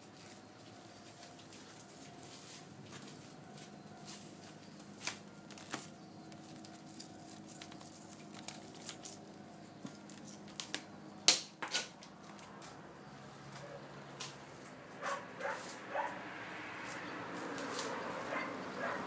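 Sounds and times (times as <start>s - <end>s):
puppies scuffling at play: 0.0s - 10.8s.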